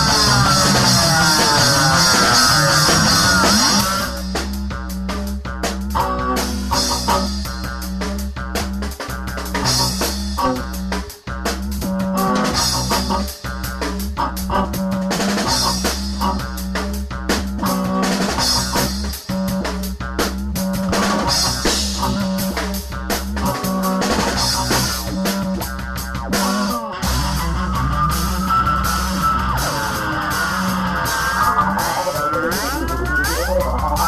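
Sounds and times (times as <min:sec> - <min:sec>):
band music with steady beat: 0:00.0 - 0:34.0
wavering gliding tone: 0:26.4 - 0:34.0.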